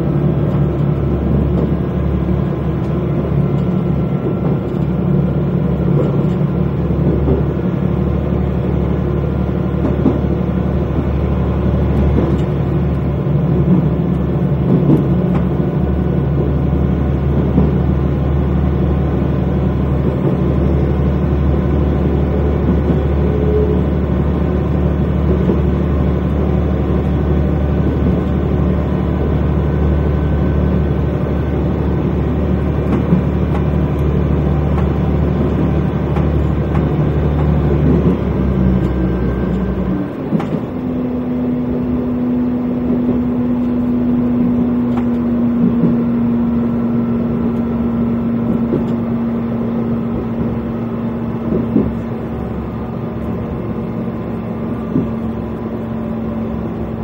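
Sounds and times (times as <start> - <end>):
diesel engine drone: 0.0 - 57.0
train wheels rumbling on rails: 0.0 - 57.0.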